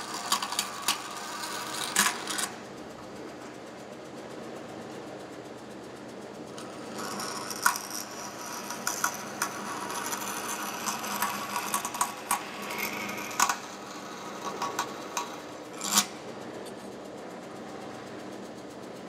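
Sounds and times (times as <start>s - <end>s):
bandsaw cutting metal: 0.0s - 2.5s, 6.6s - 16.2s.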